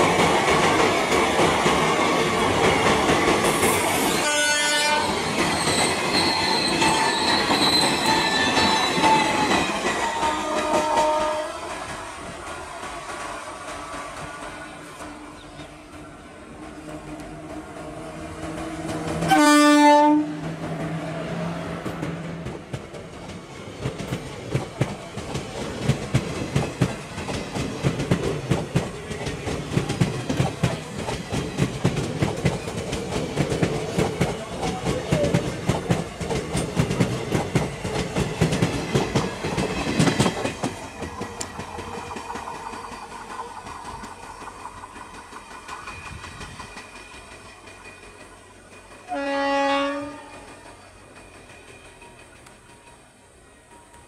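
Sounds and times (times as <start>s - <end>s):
train horn blast: 4.1s - 5.2s, 10.0s - 11.8s, 19.2s - 20.5s, 49.1s - 50.5s
train wheels clattering over rail joints: 21.8s - 49.6s.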